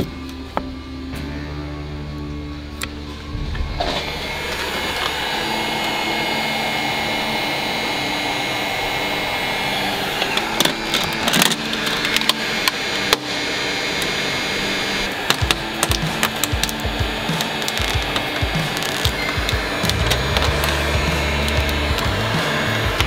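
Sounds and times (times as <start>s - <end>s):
heat gun blowing: 2.8s - 23.0s
film crackling as peeled: 15.3s - 22.2s.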